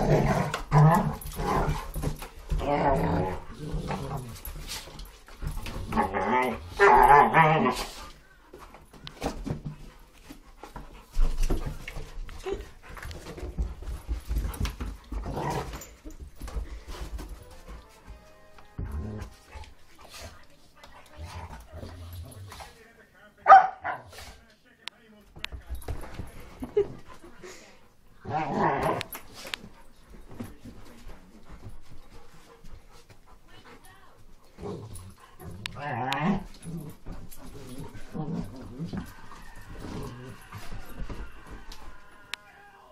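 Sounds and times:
dog growling: 0.0s - 4.5s, 15.1s - 15.9s, 28.2s - 29.2s, 34.6s - 40.7s
dogs scuffling and thumping: 0.0s - 24.5s, 25.2s - 42.4s.

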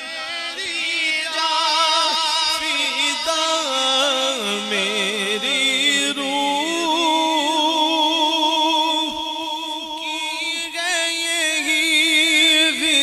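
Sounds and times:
man singing through microphone: 0.0s - 13.0s.

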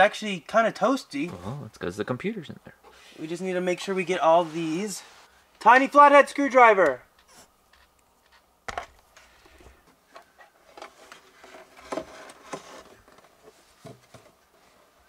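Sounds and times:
rustling of felt material: 3.0s - 6.0s.

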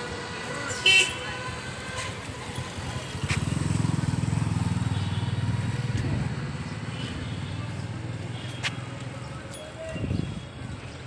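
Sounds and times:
vehicle engine passing: 1.4s - 8.9s.

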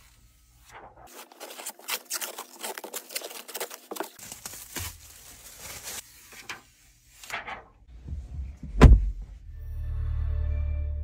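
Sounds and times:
plastic film crinkling: 0.9s - 6.6s
loud low thump: 8.6s - 9.3s.

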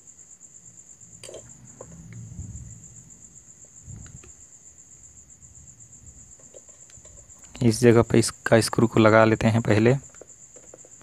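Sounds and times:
cricket trilling: 0.0s - 11.0s.

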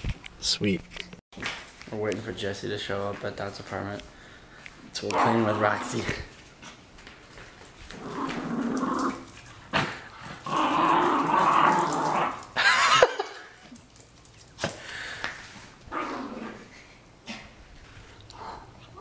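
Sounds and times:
small dog growling: 5.1s - 6.1s, 7.9s - 12.5s, 15.9s - 17.6s.

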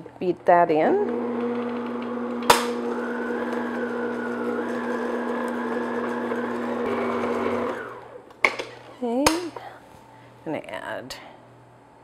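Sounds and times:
stand mixer motor running: 1.1s - 8.2s.

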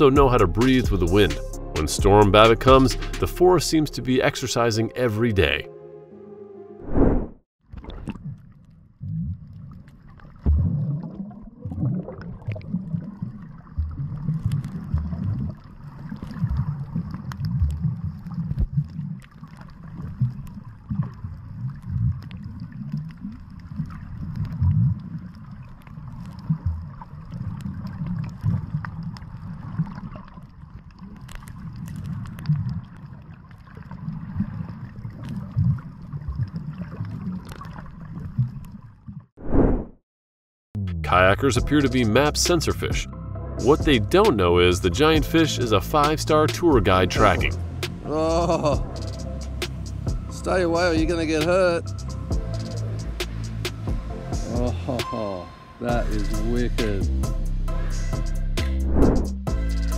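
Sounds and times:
water gurgling: 7.7s - 39.3s, 43.6s - 56.6s.

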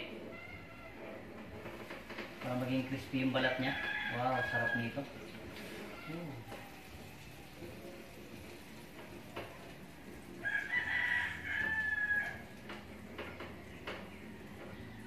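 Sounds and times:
rooster crowing: 3.4s - 5.0s, 10.4s - 12.6s.

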